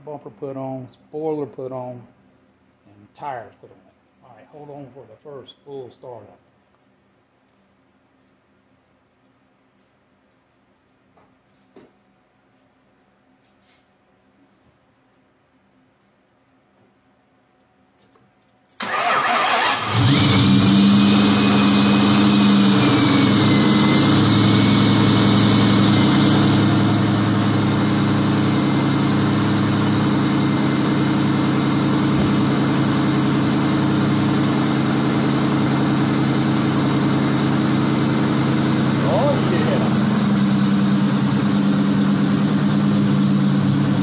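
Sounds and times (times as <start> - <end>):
starter motor cranking: 18.8 - 20.9
car engine idling: 18.8 - 44.0.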